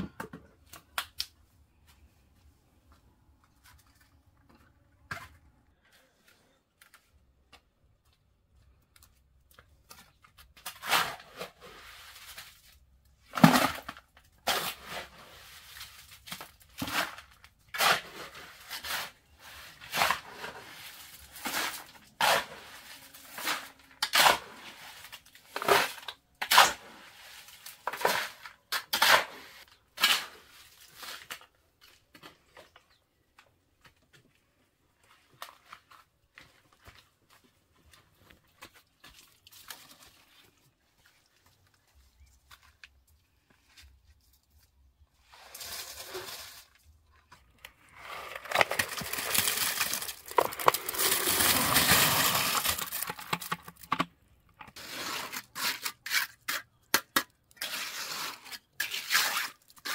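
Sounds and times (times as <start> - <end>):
shovel scraping sand and gravel: 10.6 - 12.7, 13.3 - 31.5, 45.2 - 46.8, 47.8 - 53.2, 54.8 - 56.8, 57.6 - 59.9.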